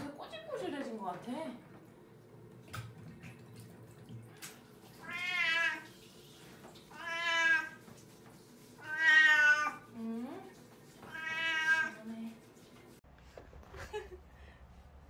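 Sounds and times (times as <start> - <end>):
cat meowing: 5.0 - 5.9, 6.9 - 7.8, 8.8 - 9.8, 11.1 - 12.0.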